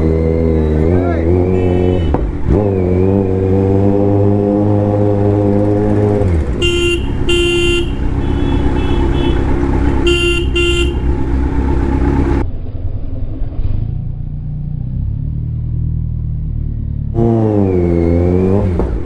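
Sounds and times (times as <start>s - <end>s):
motorcycle engine revving: 0.0s - 19.0s
traffic rumble: 0.0s - 19.0s
horn honking: 1.5s - 2.3s, 6.4s - 11.4s.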